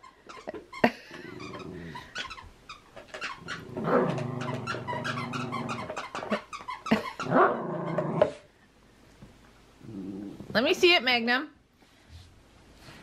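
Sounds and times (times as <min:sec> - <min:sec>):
dog growling in play: 0:01.1 - 0:02.1, 0:03.4 - 0:06.4, 0:07.2 - 0:08.4, 0:09.8 - 0:10.5.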